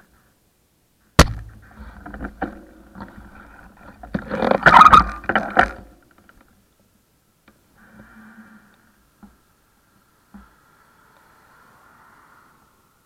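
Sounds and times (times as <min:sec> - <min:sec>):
clattering knocks and scraping: 0:01.2 - 0:06.5.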